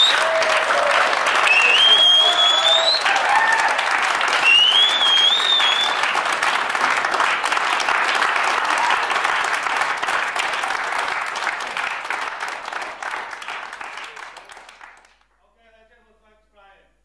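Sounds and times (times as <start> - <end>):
whistle from crowd: 0.0 - 0.4, 1.4 - 3.2, 4.4 - 6.1
audience applauding: 0.0 - 15.3.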